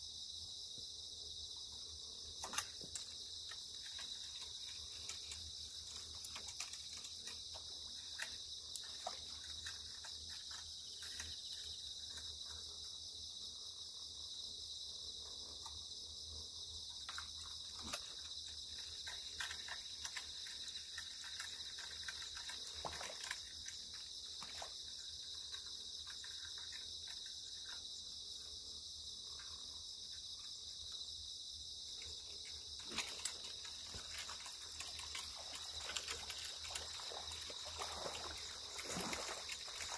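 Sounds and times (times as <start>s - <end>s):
crickets chirring: 0.0s - 39.9s
faint clicks and ticks: 2.4s - 13.0s, 16.8s - 28.6s.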